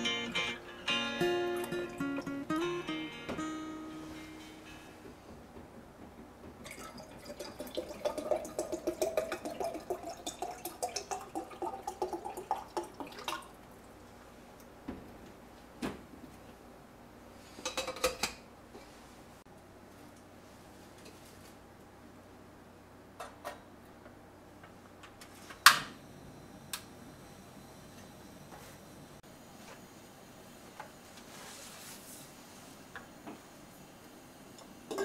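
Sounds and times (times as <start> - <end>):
knocks and clatter: 4.4 - 6.9
water pouring into a pot: 6.6 - 13.6.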